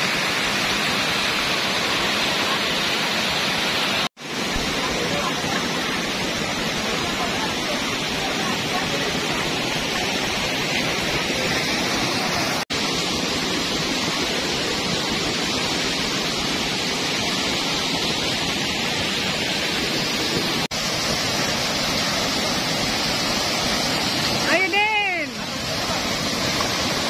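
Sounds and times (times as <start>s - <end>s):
rain falling on foliage: 20.3s - 27.0s.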